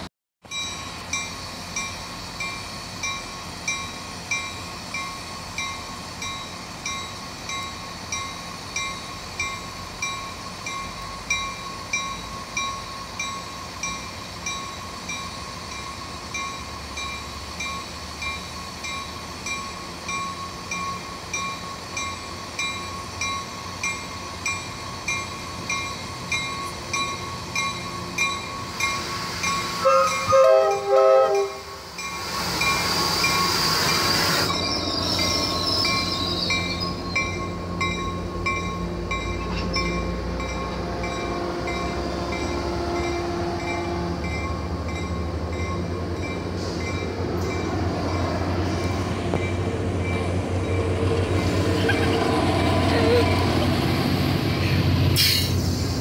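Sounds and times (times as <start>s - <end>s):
railroad crossing bell ringing: 0.4s - 54.6s
locomotive air horn: 29.8s - 31.8s, 40.8s - 44.4s.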